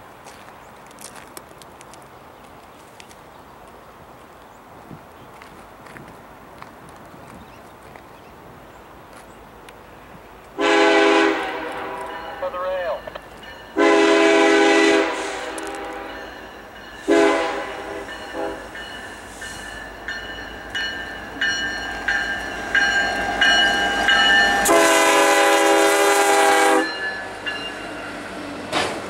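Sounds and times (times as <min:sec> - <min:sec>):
freight train passing: 0:00.0 - 0:29.0
locomotive air horn blasts: 0:10.6 - 0:13.0, 0:13.8 - 0:16.2, 0:17.0 - 0:18.7, 0:24.5 - 0:27.0.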